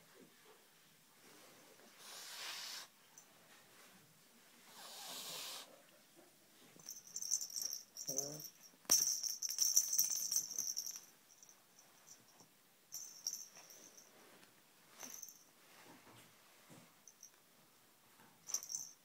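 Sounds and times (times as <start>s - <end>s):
kitten hissing: 2.0s - 2.9s, 4.7s - 5.7s
toy jingling rattle: 6.8s - 14.1s, 15.0s - 15.4s, 18.4s - 19.0s.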